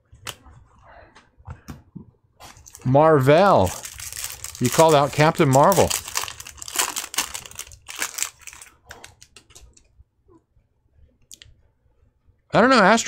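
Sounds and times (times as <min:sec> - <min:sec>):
card pack crinkling and clicking: 0:02.6 - 0:09.8.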